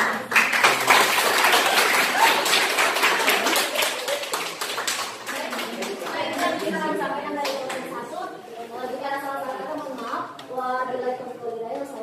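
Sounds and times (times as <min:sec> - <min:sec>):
students clapping: 0:00.0 - 0:06.8, 0:07.4 - 0:07.9.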